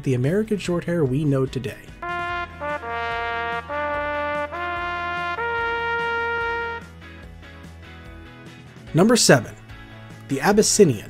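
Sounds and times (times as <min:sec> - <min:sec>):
quiet background music: 0:00.0 - 0:11.0
trumpet melody: 0:02.0 - 0:07.1.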